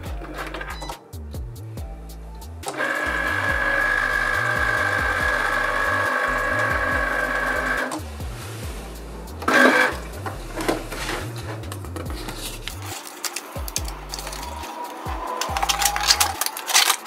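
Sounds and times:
cutting machine motors whining: 0:02.7 - 0:08.0.

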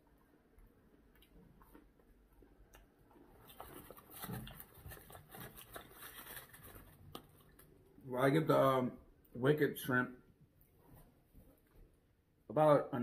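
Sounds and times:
chewing and handling food: 0:00.0 - 0:08.0.

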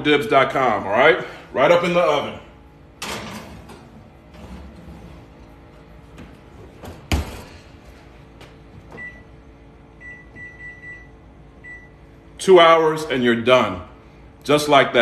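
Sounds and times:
oven door thud: 0:06.8 - 0:07.6
microwave keypad beeps: 0:09.0 - 0:09.3, 0:10.0 - 0:12.0.

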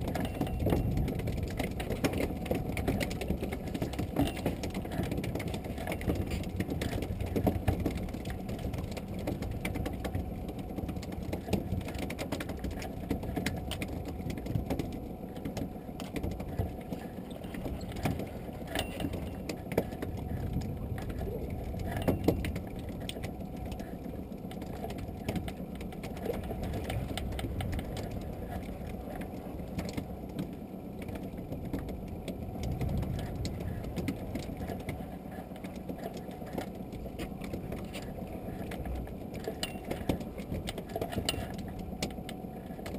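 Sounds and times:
low rumble: 0:20.0 - 0:23.5.

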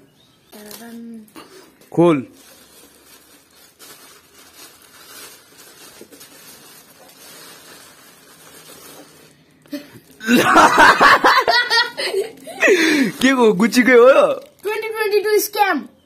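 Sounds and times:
rustling of tissue paper and plastic: 0:00.5 - 0:15.6
boy laughing loudly: 0:10.2 - 0:13.1.

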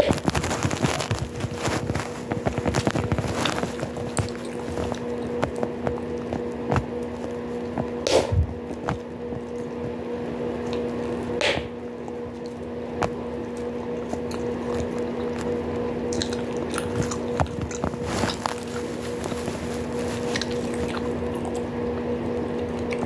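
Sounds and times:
steady low hum: 0:00.0 - 0:23.0
gum chewing mouth clicks: 0:02.2 - 0:08.0, 0:12.0 - 0:23.0
gum snaps: 0:12.3 - 0:18.9.

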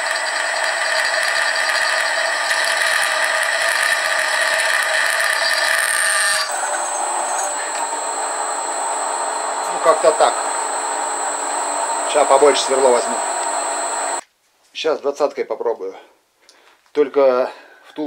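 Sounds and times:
drill cutting into steel: 0:00.0 - 0:14.2
machine motor running: 0:00.0 - 0:14.2.

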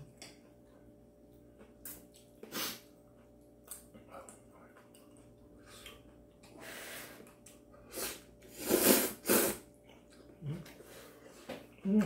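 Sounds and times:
person slurping noodles: 0:07.9 - 0:09.7.

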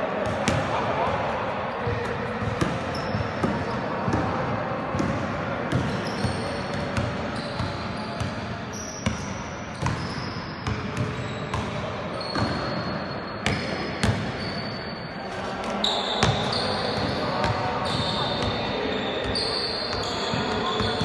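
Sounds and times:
basketball bouncing on court floor: 0:01.8 - 0:12.8, 0:13.4 - 0:14.4.

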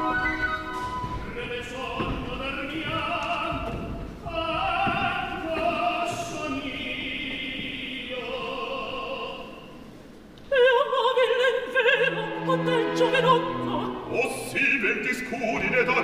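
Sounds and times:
operatic singing: 0:00.0 - 0:09.9, 0:10.5 - 0:16.0
orchestra playing low notes: 0:11.9 - 0:16.0.

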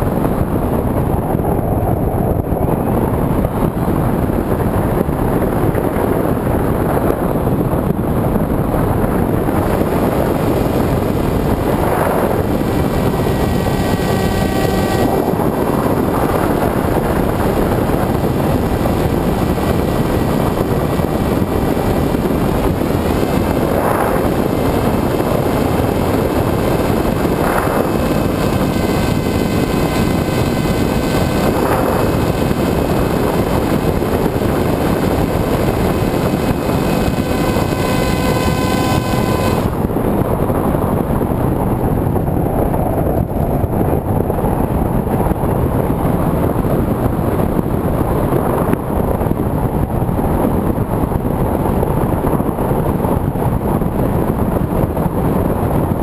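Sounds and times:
wind rushing: 0:03.2 - 0:40.7
electric motor whine: 0:08.7 - 0:40.2.

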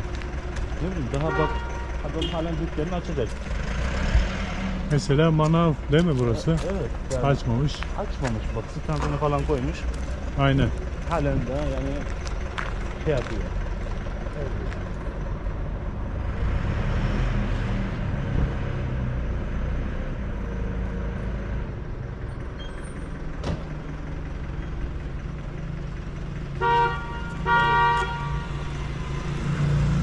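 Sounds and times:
street traffic: 0:00.0 - 0:30.0
car horn honking: 0:01.1 - 0:02.7, 0:26.5 - 0:28.7.

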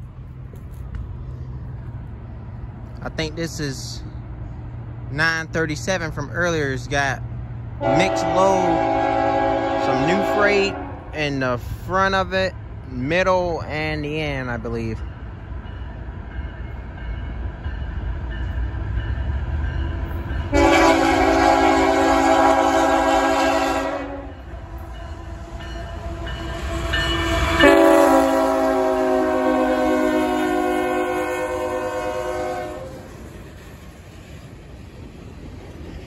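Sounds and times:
train rumble: 0:00.0 - 0:36.0
locomotive horn blasts: 0:07.8 - 0:11.1, 0:20.5 - 0:33.1.

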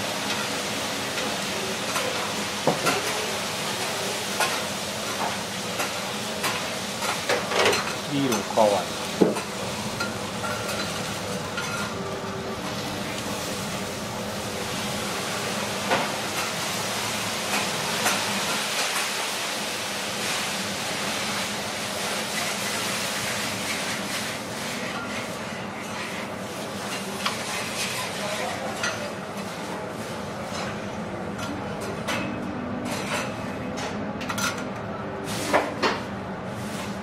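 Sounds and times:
steak sizzling on a griddle: 0:00.0 - 0:28.4.

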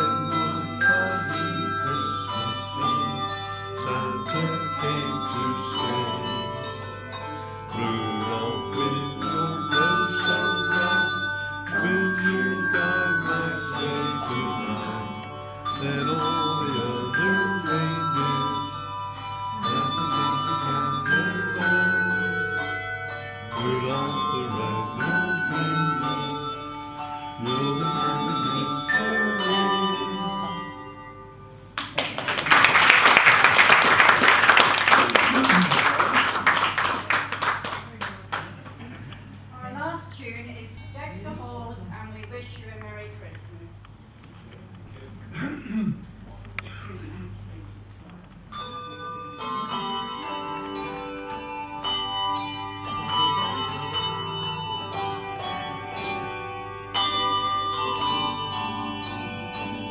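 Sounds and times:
handbell choir playing: 0:00.0 - 0:37.7, 0:48.5 - 0:59.9
audience applause: 0:31.8 - 0:38.8.

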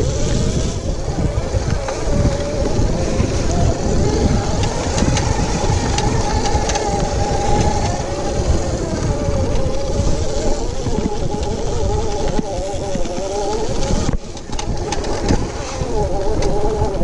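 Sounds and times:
electric motor whining: 0:00.0 - 0:17.0.

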